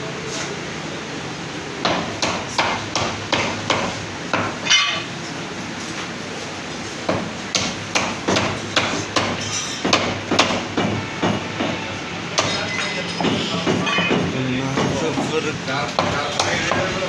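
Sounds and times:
metallic clang: 0:04.6 - 0:05.1, 0:12.4 - 0:14.3.

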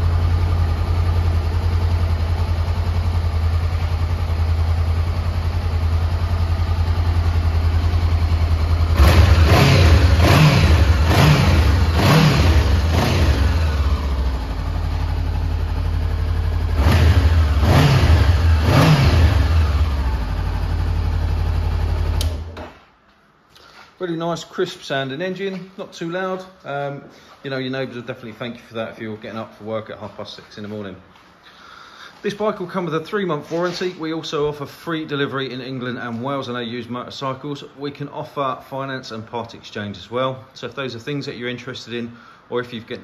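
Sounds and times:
motorcycle engine idling: 0:00.0 - 0:22.5
engine revving in throttle blips: 0:08.7 - 0:14.6, 0:16.6 - 0:20.5.

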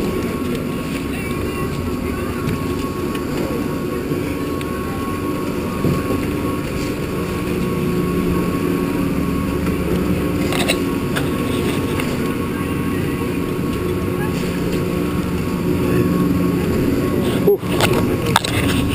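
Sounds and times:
chairlift machinery humming: 0:00.0 - 0:18.9
clicks and clatter: 0:17.7 - 0:18.9.

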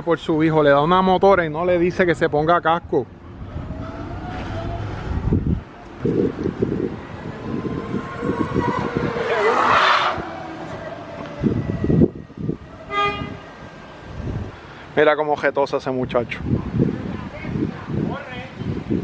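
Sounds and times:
rush of passing noise: 0:02.9 - 0:15.4.

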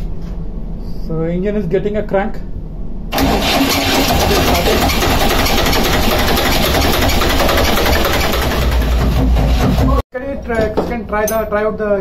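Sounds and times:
diesel engine cranking on starter: 0:03.1 - 0:09.9.

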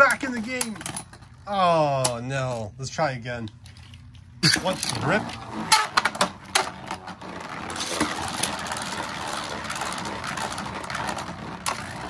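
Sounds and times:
spinning tops whirring: 0:04.5 - 0:12.0.

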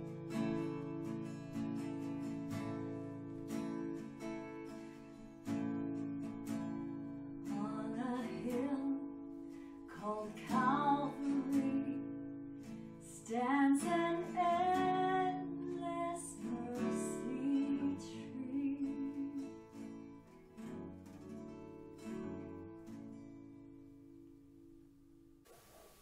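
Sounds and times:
acoustic guitar strumming: 0:00.0 - 0:26.0
person singing: 0:10.0 - 0:12.2, 0:13.1 - 0:19.6.

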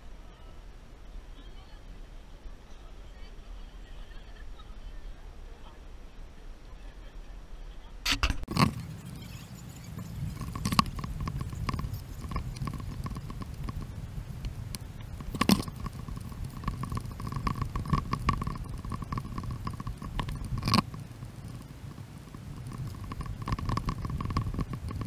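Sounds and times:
camera handling rumble: 0:08.1 - 0:25.0.

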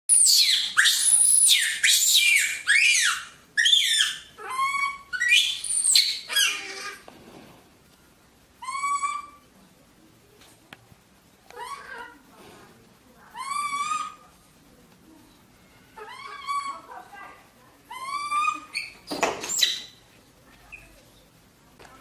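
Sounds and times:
baby monkey screaming: 0:00.1 - 0:07.0, 0:08.6 - 0:09.4, 0:11.6 - 0:12.2, 0:13.3 - 0:14.2, 0:16.0 - 0:16.9, 0:17.9 - 0:20.0.

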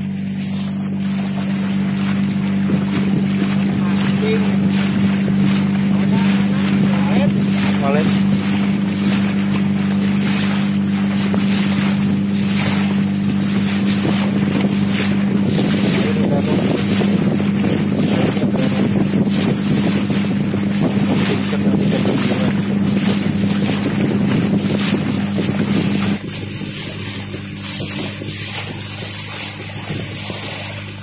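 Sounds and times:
boat engine humming: 0:00.0 - 0:31.0
wind buffeting microphone: 0:00.0 - 0:31.0.

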